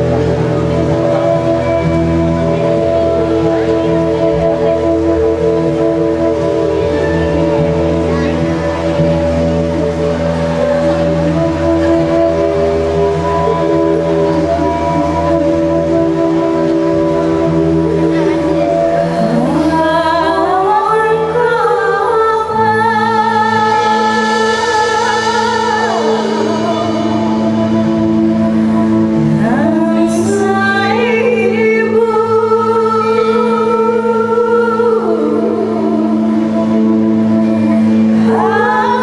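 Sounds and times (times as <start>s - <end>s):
low held drone: 0.0s - 39.0s
women singing held notes: 11.0s - 39.0s.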